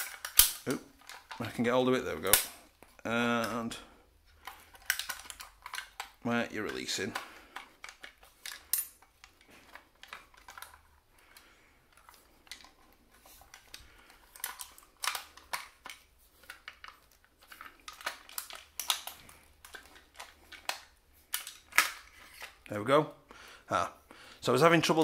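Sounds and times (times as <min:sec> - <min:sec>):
toy rifle clicks and knocks: 0:00.0 - 0:02.7, 0:04.4 - 0:11.0, 0:11.9 - 0:22.6.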